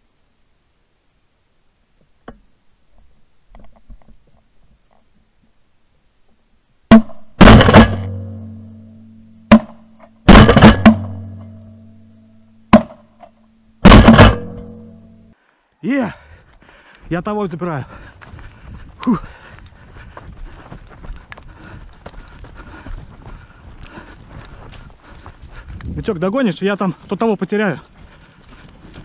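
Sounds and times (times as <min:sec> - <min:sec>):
shotgun shots with echo: 0:06.9 - 0:08.2, 0:09.5 - 0:11.2, 0:13.8 - 0:14.7.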